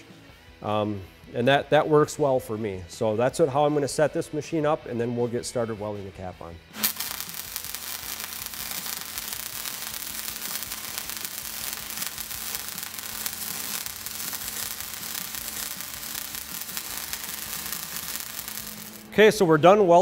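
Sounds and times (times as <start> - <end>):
welding arc crackling sizzle: 6.8 - 19.4.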